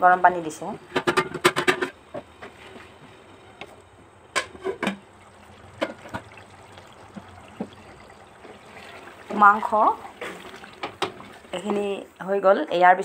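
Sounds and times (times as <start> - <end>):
hot water pouring into pot: 4.8 - 12.3.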